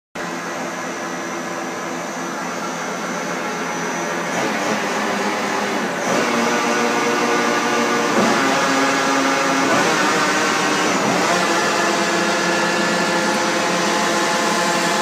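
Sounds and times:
lathe whine and hum: 0.2s - 15.0s.

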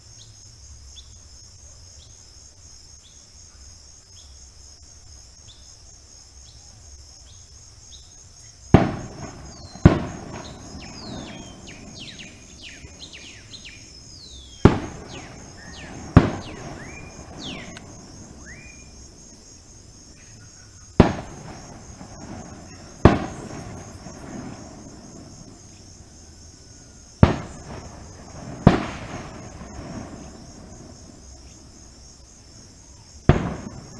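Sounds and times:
insects chorus: 0.0s - 33.9s
loud sharp bangs with echo: 8.8s - 19.0s, 21.0s - 25.7s, 27.2s - 31.2s, 33.3s - 33.9s
birds falling whistled calls: 8.9s - 19.1s, 20.1s - 24.7s.

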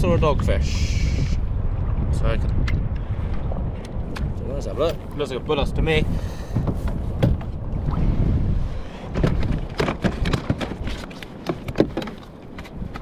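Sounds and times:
wind rumbling on microphone: 0.0s - 13.0s
sharp knocks and clicks: 6.6s - 7.6s, 9.1s - 13.0s.

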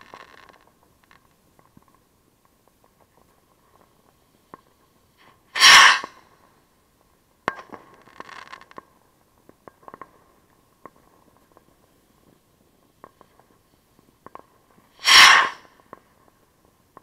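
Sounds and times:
firework bursting crack: 0.0s - 1.3s, 5.5s - 6.2s, 7.5s - 8.8s, 14.9s - 16.0s
firework crackling and pops: 0.0s - 17.0s
firework rocket whoosh: 5.5s - 6.2s, 14.9s - 15.8s.

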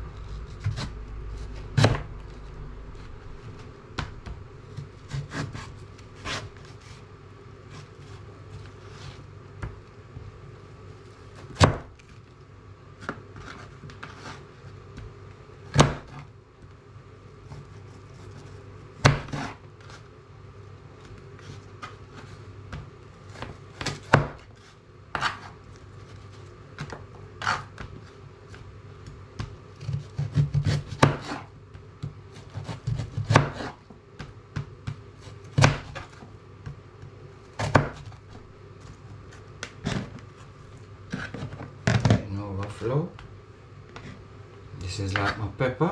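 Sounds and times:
knife chopping on plastic board: 0.5s - 0.9s, 1.8s - 2.1s, 4.0s - 6.5s, 11.4s - 12.0s, 15.7s - 16.3s, 19.0s - 19.6s, 22.7s - 24.5s, 25.1s - 25.5s, 26.8s - 36.8s, 37.6s - 38.2s.

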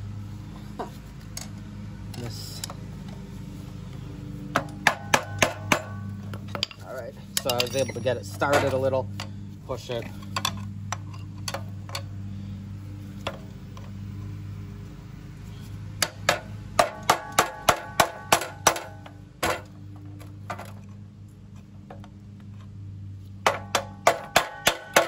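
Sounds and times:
low steady hum: 0.0s - 25.0s
hammer striking metal: 4.5s - 6.8s, 16.0s - 19.6s, 23.4s - 25.0s.

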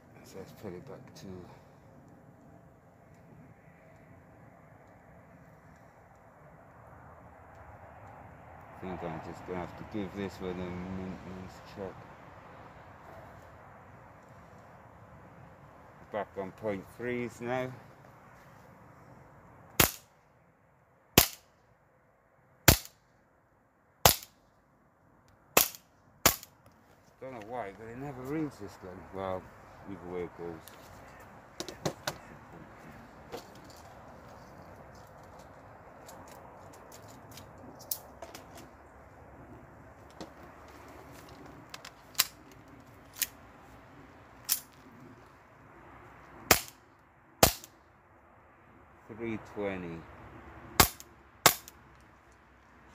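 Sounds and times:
airsoft pistol shots: 19.8s - 20.0s, 21.2s - 21.4s, 22.7s - 23.0s, 24.0s - 24.3s, 47.4s - 47.7s.

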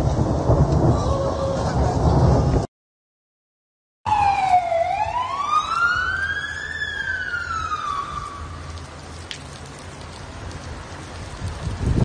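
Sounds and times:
emergency siren wailing: 4.1s - 8.9s
rain and water hissing: 5.8s - 12.0s.

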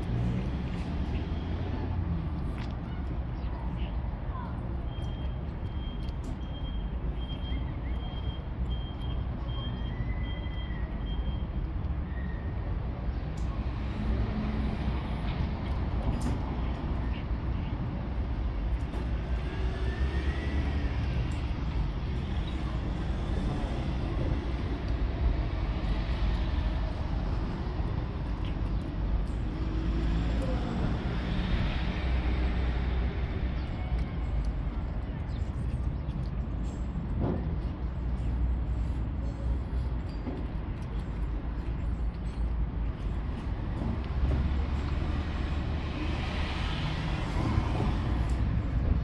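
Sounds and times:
distant vehicle engines: 0.0s - 49.0s
street traffic rumble: 0.0s - 49.0s.

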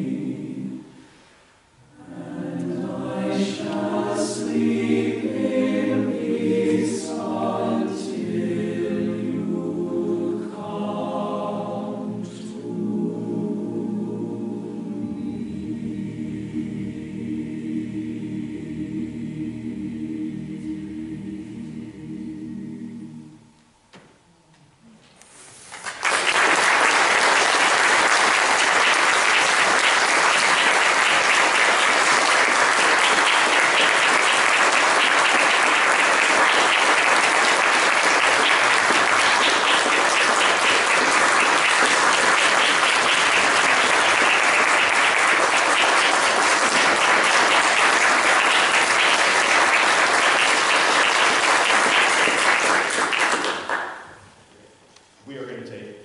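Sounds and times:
audience applauding: 25.6s - 54.2s.

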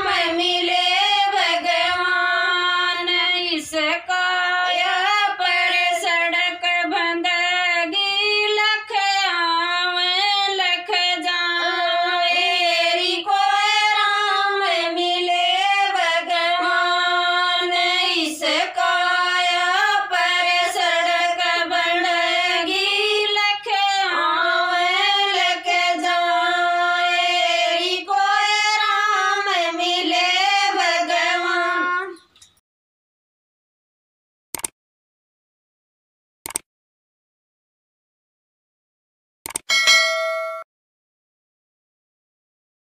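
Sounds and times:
women singing unaccompanied: 0.0s - 32.3s.

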